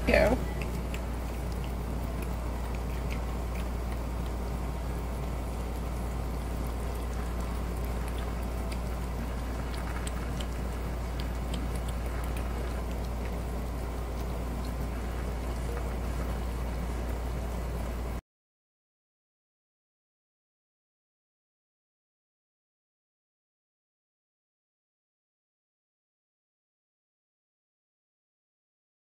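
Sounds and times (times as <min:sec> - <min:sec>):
cats licking and chewing food: 0:00.0 - 0:18.2
steady low hum: 0:00.0 - 0:18.2.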